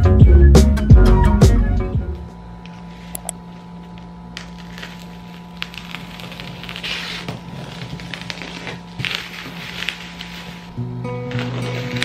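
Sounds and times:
steady low hum: 0:00.0 - 0:12.0
bubble wrap crinkling: 0:02.9 - 0:12.0.

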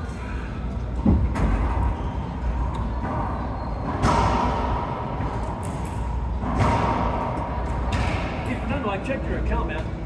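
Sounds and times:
steady low hum: 0:00.0 - 0:10.0
racquetball hits echoing: 0:03.0 - 0:08.4.

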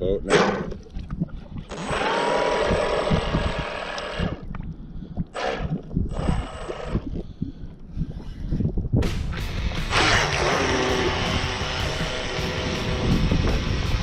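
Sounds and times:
wind rumbling on microphone: 0:00.0 - 0:14.0
model boat motor whining: 0:01.7 - 0:04.4, 0:09.9 - 0:13.4.

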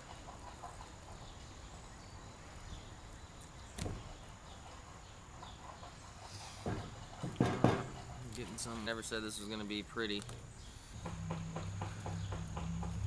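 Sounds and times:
quiet outdoor background noise: 0:00.0 - 0:13.0
sharp knock: 0:11.0 - 0:13.0.

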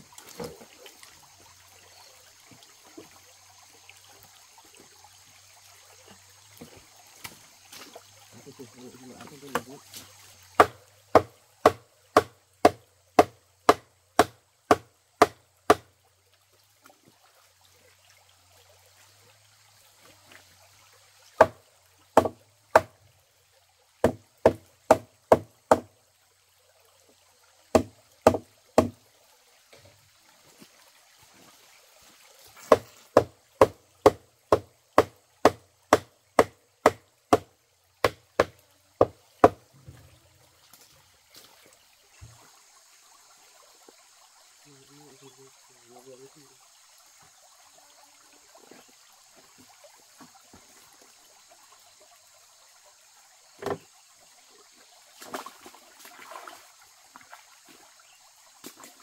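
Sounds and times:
stream trickling: 0:00.0 - 0:59.0
hammer knocking on wood: 0:10.6 - 0:15.8, 0:22.2 - 0:22.9, 0:24.0 - 0:25.9, 0:27.7 - 0:29.0.

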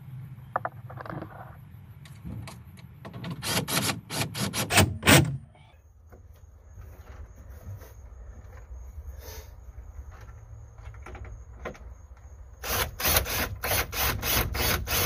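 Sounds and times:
cordless drill bursts: 0:12.6 - 0:15.0.

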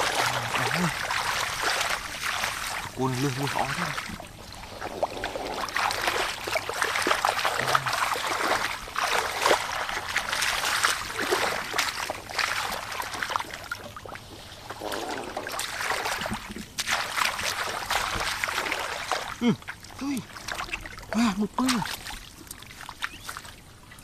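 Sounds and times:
hands splashing in shallow water: 0:00.0 - 0:04.2, 0:04.8 - 0:13.6, 0:14.8 - 0:19.4.

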